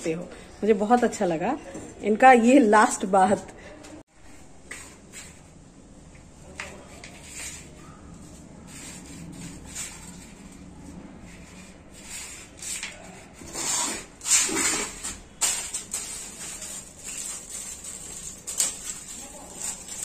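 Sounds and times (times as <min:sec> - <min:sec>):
scrapes in pot: 0:06.8 - 0:20.0
hands rustling potting soil: 0:14.6 - 0:20.0.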